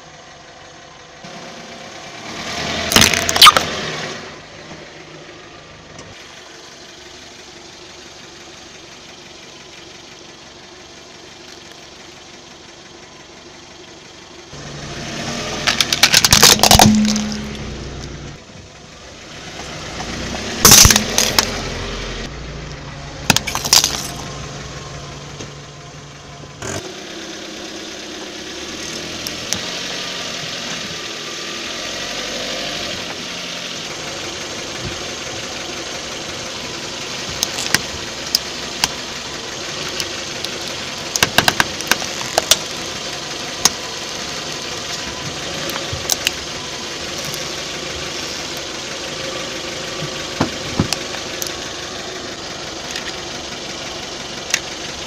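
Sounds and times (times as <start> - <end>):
car engine idling: 0.0 - 55.0
toys cracking under tyre: 2.9 - 3.8, 15.6 - 17.6, 20.6 - 21.6, 23.3 - 24.3, 40.5 - 42.7.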